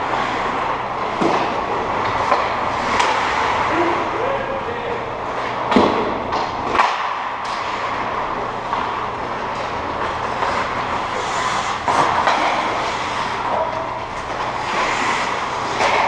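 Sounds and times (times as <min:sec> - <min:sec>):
hockey sticks and puck clacking: 0:00.0 - 0:04.0, 0:04.6 - 0:16.0
steady low hum: 0:00.0 - 0:16.0
skate blades scraping ice: 0:06.7 - 0:16.0.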